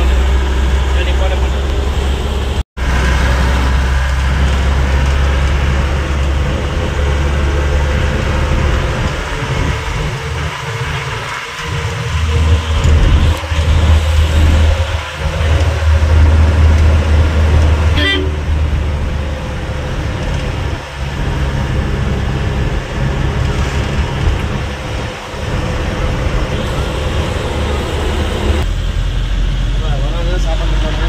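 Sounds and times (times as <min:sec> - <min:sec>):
car engine and road noise: 0:00.0 - 0:31.0
car horn toot: 0:17.9 - 0:18.5.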